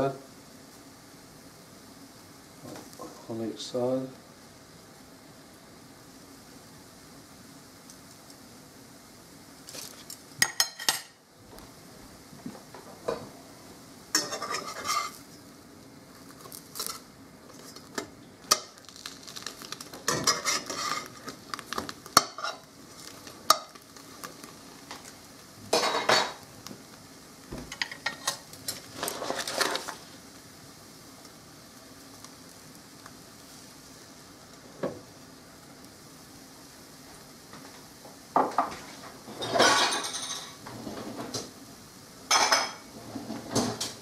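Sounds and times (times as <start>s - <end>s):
faint sizzle: 0.0s - 44.0s
metal spatula scraping a pan: 14.2s - 15.2s, 20.1s - 21.2s.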